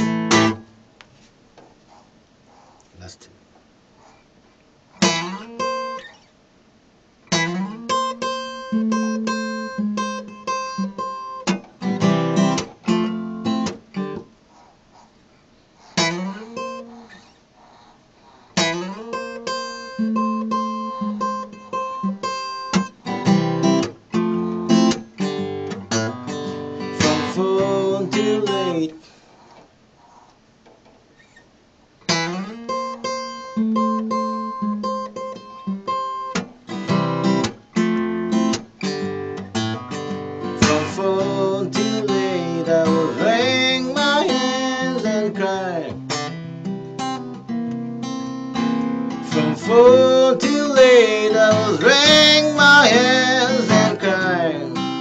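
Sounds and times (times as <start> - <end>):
acoustic guitar blues picking: 0.0 - 0.8, 4.9 - 6.3, 7.3 - 14.4, 15.8 - 29.0, 32.0 - 55.0.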